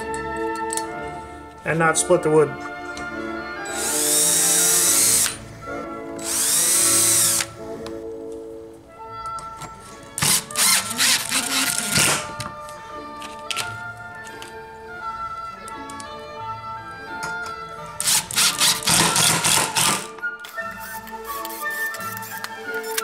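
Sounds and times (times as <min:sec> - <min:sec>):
background music: 0:00.0 - 0:23.0
cordless drill spinning: 0:03.7 - 0:05.4, 0:06.2 - 0:07.5, 0:10.2 - 0:12.1, 0:18.0 - 0:20.0.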